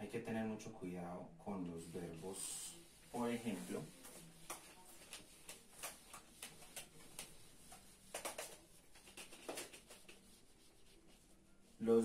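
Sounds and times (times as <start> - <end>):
eraser scrubbing whiteboard: 1.8 - 11.4.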